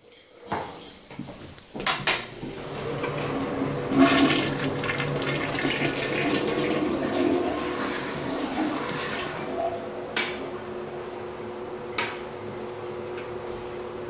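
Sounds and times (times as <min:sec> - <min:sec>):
toilet water rushing: 0:02.4 - 0:10.5
toilet flush click: 0:02.8 - 0:09.5.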